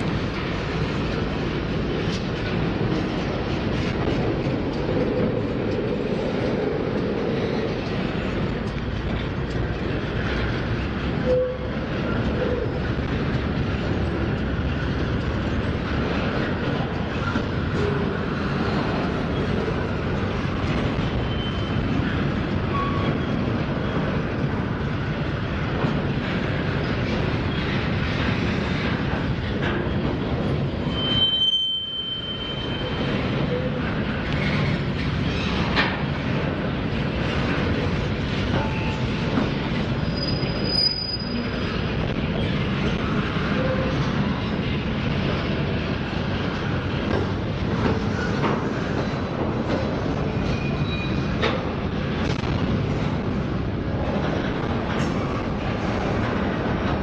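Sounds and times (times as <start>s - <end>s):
diesel locomotive engines running: 0.0s - 57.0s
train wheels clacking over rail joints: 32.3s - 57.0s.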